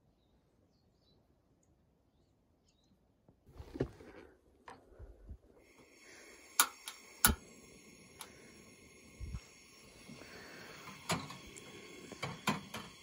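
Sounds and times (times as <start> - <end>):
gas hissing: 3.5 - 13.0
igniter clicks: 5.7 - 13.0
stove being handled knocks: 12.1 - 13.0.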